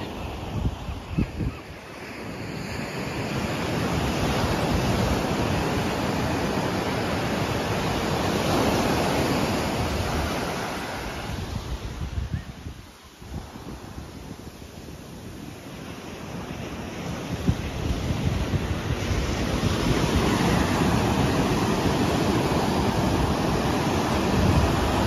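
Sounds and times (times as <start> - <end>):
waves breaking on beach: 0.0 - 25.0.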